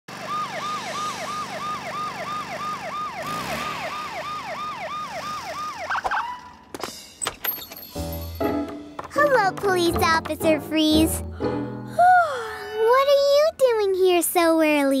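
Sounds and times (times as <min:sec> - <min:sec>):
cartoon police siren wailing: 0:00.1 - 0:06.6.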